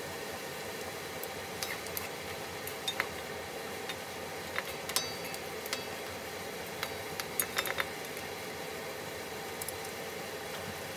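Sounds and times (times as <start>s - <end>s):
food sizzling in a wok: 0.0s - 10.9s
wooden utensils clicking on pan: 3.9s - 6.1s, 6.8s - 8.2s.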